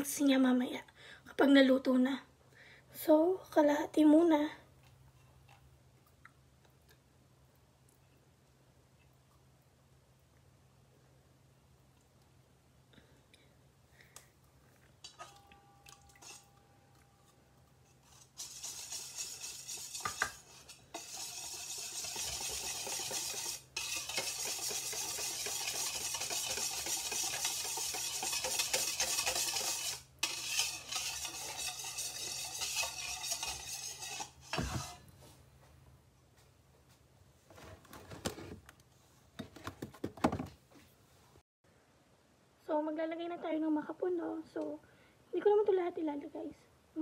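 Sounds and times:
whisk beating batter in metal bowl: 16.2 - 16.5, 17.8 - 35.0.

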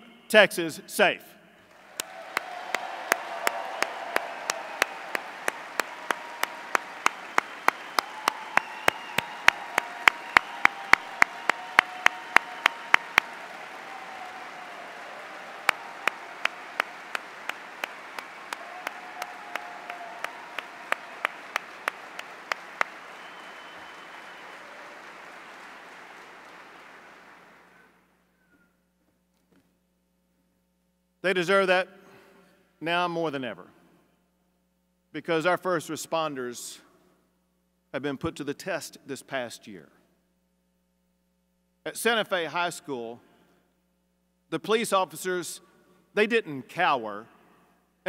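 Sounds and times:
close sharp hand claps: 1.7 - 28.0
large crowd applauding: 1.7 - 28.1.

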